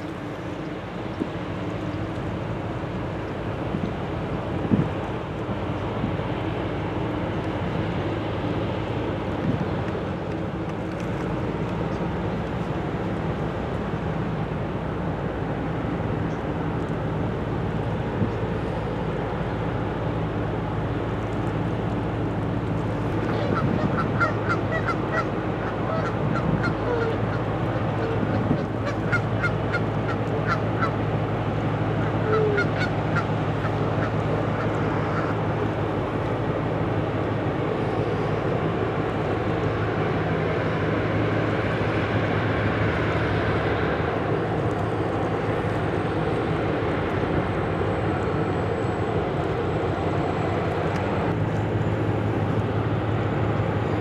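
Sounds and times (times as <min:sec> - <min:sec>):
ship engine drone: 0:00.0 - 0:54.0
birds honking: 0:23.2 - 0:31.0, 0:32.0 - 0:35.4.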